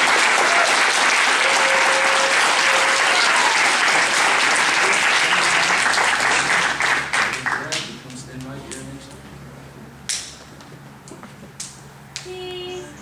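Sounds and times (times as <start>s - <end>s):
people applauding: 0.0s - 8.2s.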